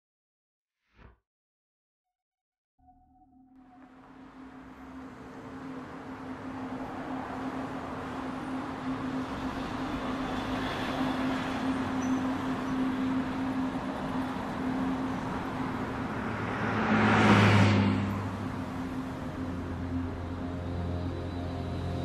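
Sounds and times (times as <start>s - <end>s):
low hum: 2.8s - 22.0s
vehicle rushing: 4.8s - 22.0s.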